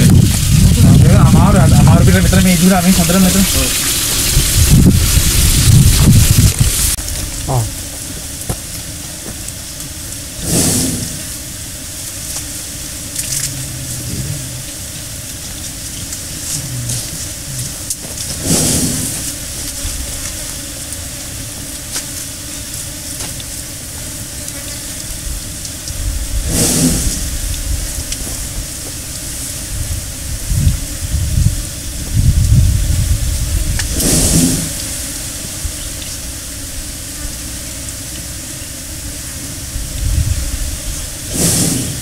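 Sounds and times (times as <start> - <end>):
steady hiss: 0.0 - 42.0
elephant breathing: 10.4 - 11.4, 13.3 - 15.2, 16.0 - 19.5, 26.3 - 27.4, 33.9 - 35.0, 41.2 - 42.0.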